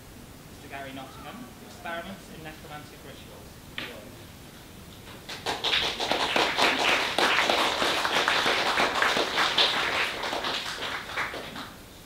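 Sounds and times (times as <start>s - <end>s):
audience applauding: 5.2s - 11.8s.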